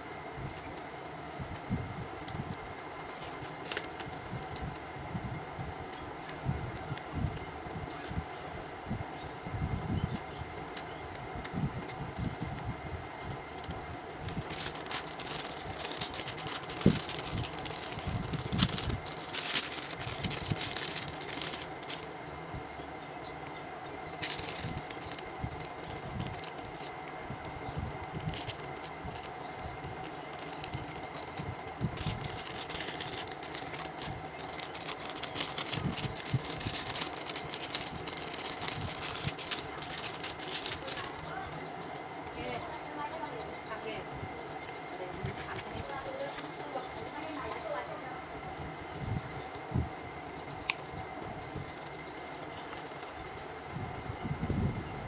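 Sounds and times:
plastic bag crinkling: 3.1s - 4.6s, 14.2s - 22.2s, 24.0s - 41.6s, 52.3s - 53.3s.

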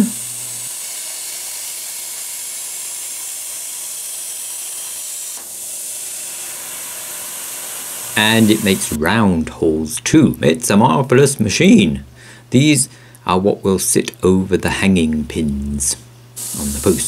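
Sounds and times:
plasma cutter hissing: 0.0s - 9.0s, 16.4s - 17.0s.

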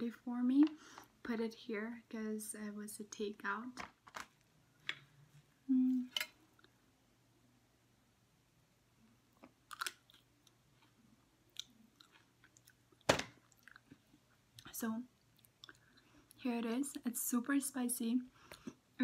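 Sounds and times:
person humming briefly: 5.7s - 6.1s
person chewing crunchy snack: 9.7s - 14.0s.

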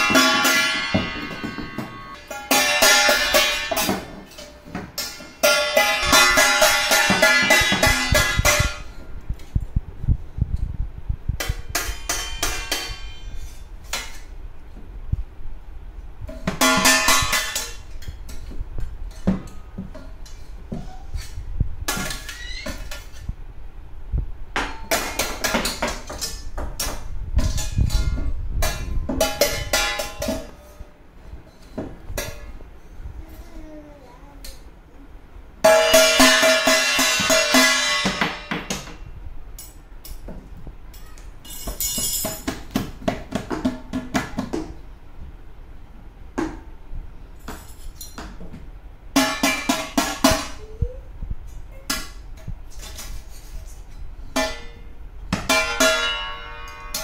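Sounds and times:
spoon striking metal plate: 11.4s - 14.2s.

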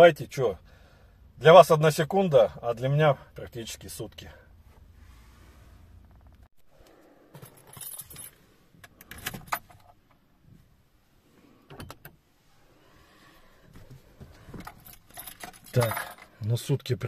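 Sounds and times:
car keys jangling: 7.4s - 10.2s, 14.3s - 16.9s.

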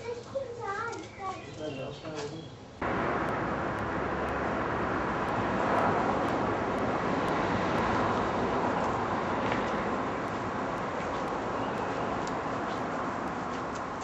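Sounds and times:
road traffic rushing: 2.8s - 14.0s.

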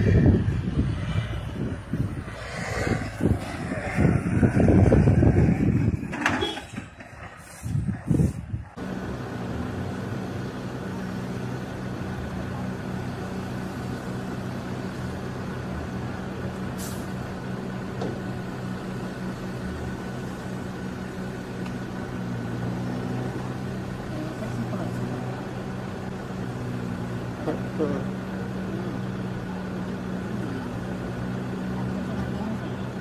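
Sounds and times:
large engine running: 8.8s - 33.0s.

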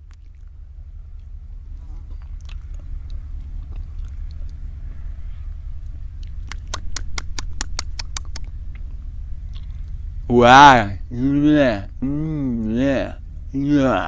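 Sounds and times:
steady low rumble: 0.0s - 14.0s
wet mouth clicks: 2.0s - 4.6s, 6.2s - 9.8s.

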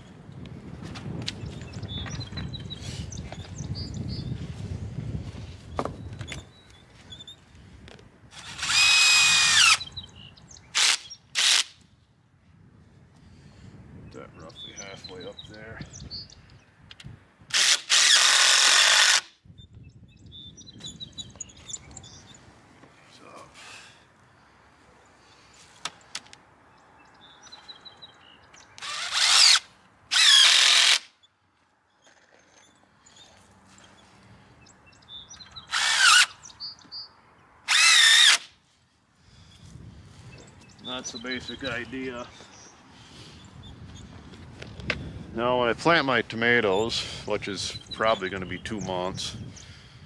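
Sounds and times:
power drill driving screw: 8.3s - 9.8s, 10.8s - 11.8s, 17.5s - 19.3s, 28.8s - 31.1s, 35.6s - 36.4s, 37.7s - 38.5s.

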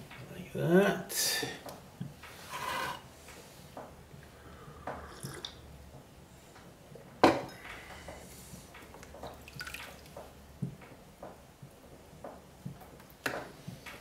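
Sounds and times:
water dripping and splashing: 8.8s - 10.8s.

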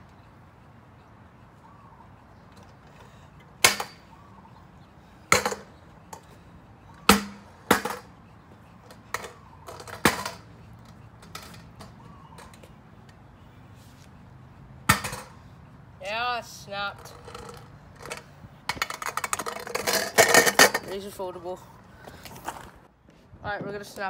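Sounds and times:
metal scooter hitting pavement: 3.6s - 4.1s, 5.3s - 6.3s, 7.0s - 8.1s, 8.9s - 10.5s, 11.2s - 12.7s, 14.8s - 15.4s, 16.8s - 21.2s.

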